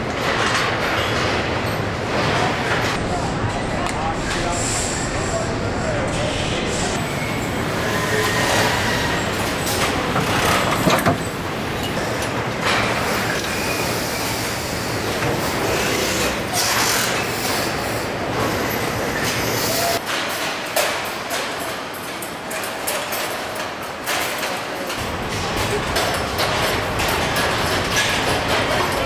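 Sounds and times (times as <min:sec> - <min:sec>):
clanks and knocks: 0:09.3 - 0:13.1, 0:20.0 - 0:29.0.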